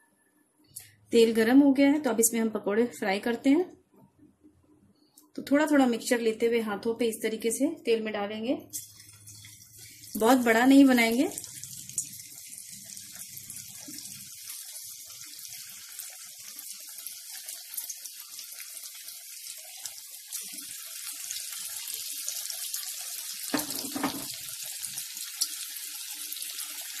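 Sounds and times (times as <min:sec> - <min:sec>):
pakoras sizzling in hot oil: 0:08.6 - 0:27.0.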